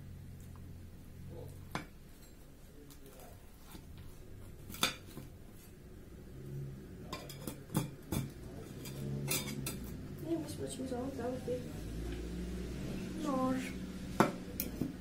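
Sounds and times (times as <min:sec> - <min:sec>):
utensils clinking on glass dish: 0:07.1 - 0:10.0.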